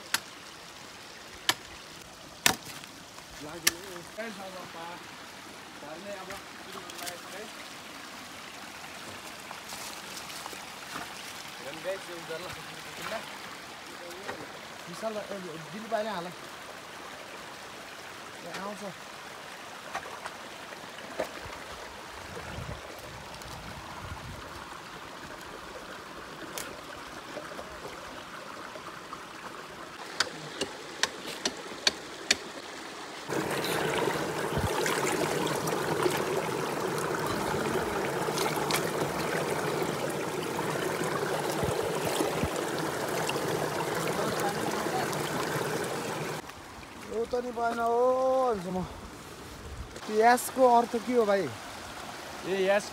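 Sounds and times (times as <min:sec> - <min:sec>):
stream running over stones: 0:00.0 - 0:52.9
wooden poles knocking stones: 0:02.4 - 0:02.9, 0:30.0 - 0:32.5.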